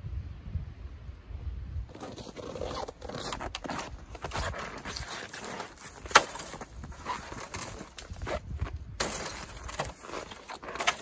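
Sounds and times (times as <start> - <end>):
footsteps crunching in snow: 1.9 - 11.0.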